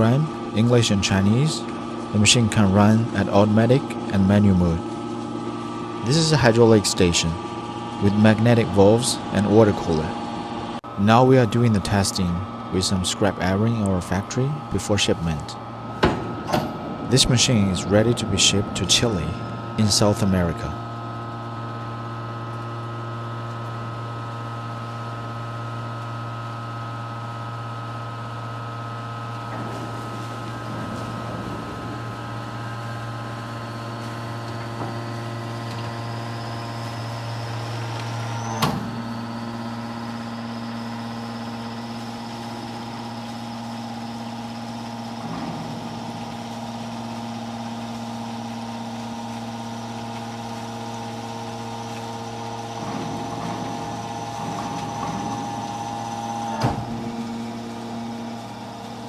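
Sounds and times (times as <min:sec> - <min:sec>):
hydraulic pump motor humming: 0:00.0 - 0:59.0
high whine rising in pitch: 0:06.0 - 0:22.4.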